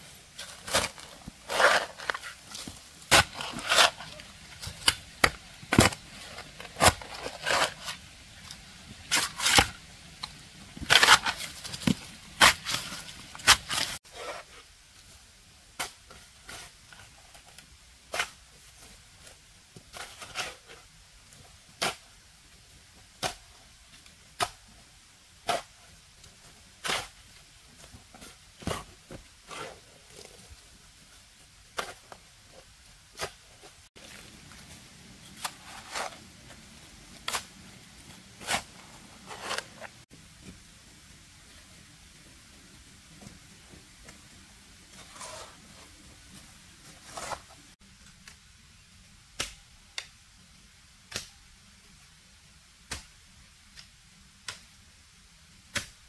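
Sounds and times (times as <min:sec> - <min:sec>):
shovel chopping and scraping soil: 0:00.3 - 0:08.0, 0:09.0 - 0:14.5, 0:15.8 - 0:16.8, 0:18.1 - 0:18.4, 0:21.8 - 0:22.1, 0:23.1 - 0:23.5, 0:24.2 - 0:24.7, 0:25.4 - 0:25.9, 0:26.7 - 0:30.4, 0:31.7 - 0:32.2, 0:33.1 - 0:34.4, 0:35.3 - 0:40.0, 0:44.9 - 0:45.8, 0:47.0 - 0:47.7, 0:51.1 - 0:51.4, 0:52.9 - 0:53.1, 0:55.7 - 0:56.0.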